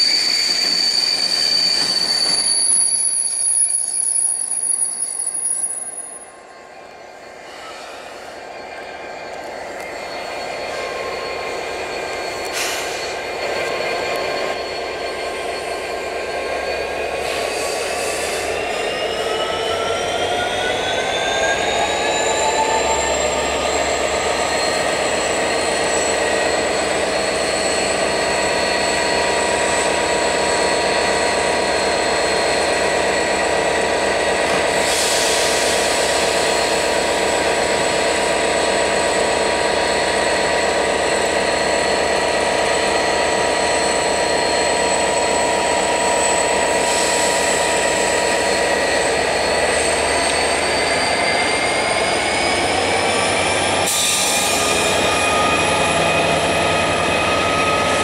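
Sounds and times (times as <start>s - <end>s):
diesel locomotive engine whine: 0.0s - 58.0s.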